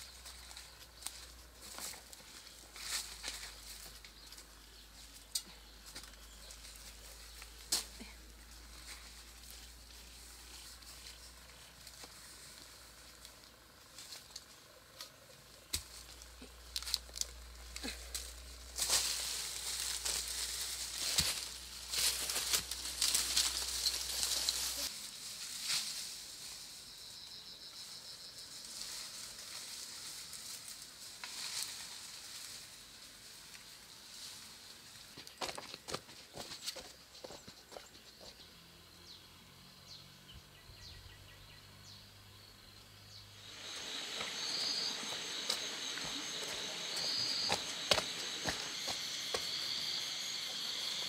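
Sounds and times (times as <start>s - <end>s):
bamboo leaves rustling and crackling: 0.0s - 36.8s, 43.3s - 51.0s
bamboo snapping: 14.3s - 19.2s
faint high whine: 41.8s - 51.0s.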